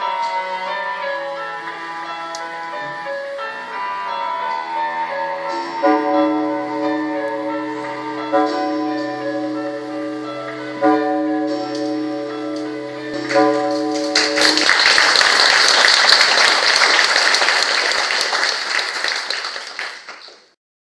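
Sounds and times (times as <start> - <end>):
sustained music chords: 0.0 - 15.4
audience applauding: 13.1 - 20.6.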